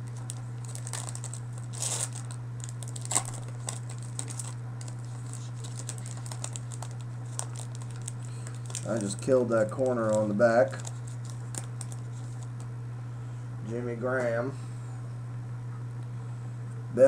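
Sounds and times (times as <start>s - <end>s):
cards clicking and rustling: 0.0s - 12.6s
low electrical hum: 0.0s - 17.0s.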